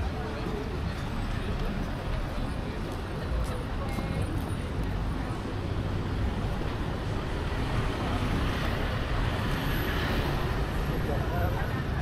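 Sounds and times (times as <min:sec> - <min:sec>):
street traffic passing: 0:00.0 - 0:12.0.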